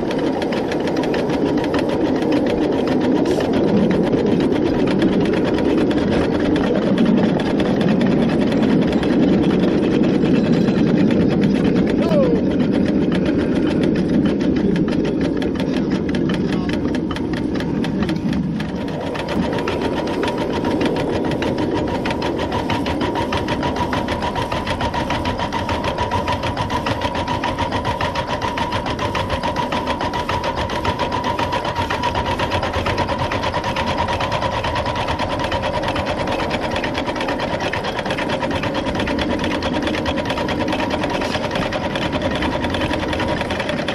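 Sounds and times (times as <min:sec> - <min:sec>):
model locomotive running gear ticking: 0:00.0 - 0:43.9.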